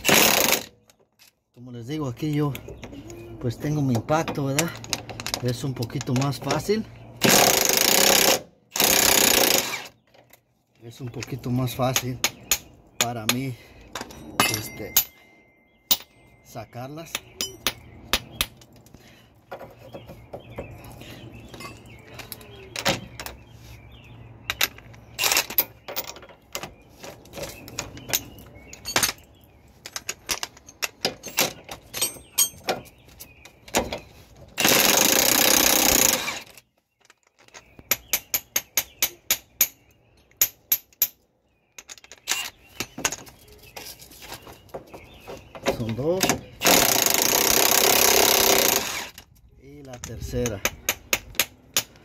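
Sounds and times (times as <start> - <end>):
metal tool clinks and knocks: 13.9 - 18.0, 21.5 - 23.4, 27.4 - 33.0.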